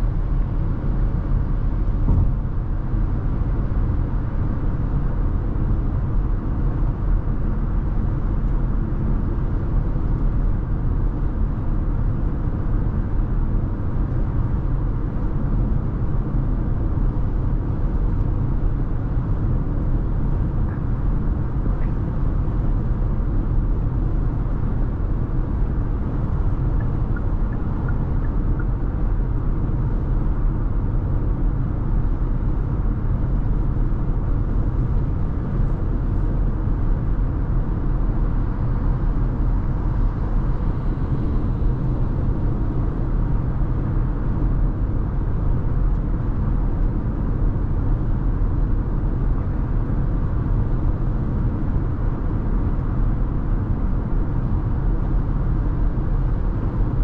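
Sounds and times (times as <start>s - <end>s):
car driving rumble: 21.6s - 30.5s.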